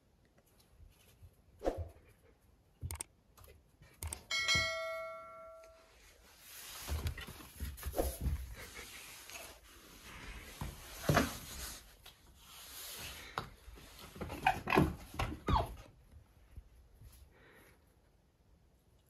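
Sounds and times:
short chime: 4.3s - 6.0s.

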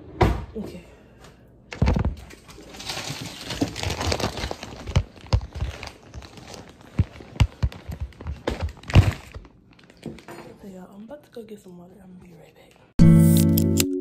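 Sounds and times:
packaging rustling and crinkling: 1.8s - 10.4s.

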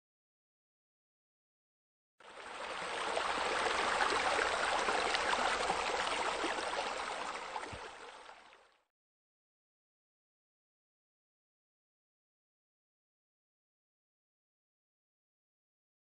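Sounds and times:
water running and trickling: 2.2s - 8.8s.

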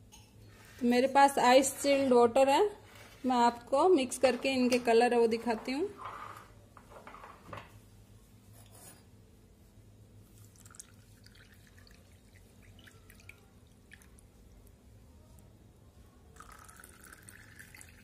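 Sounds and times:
water trickling into a glass: 10.3s - 14.5s, 16.4s - 18.0s.

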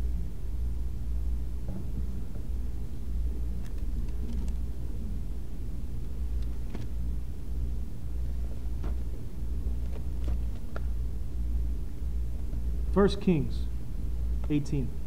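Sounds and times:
low room noise rumble: 0.0s - 15.0s
pages turning: 6.4s - 7.0s, 9.7s - 10.9s.

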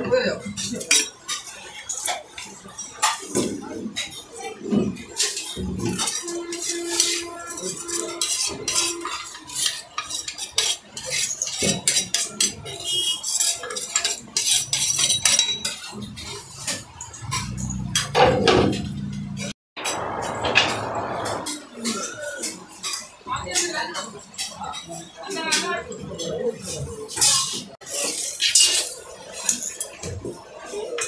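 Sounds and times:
steel spoon scraping a bowl: 3.9s - 18.1s.

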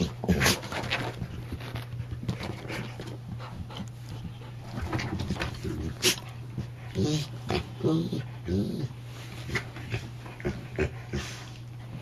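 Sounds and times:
dogs scuffling: 0.0s - 7.8s
dogs panting: 0.0s - 12.0s.

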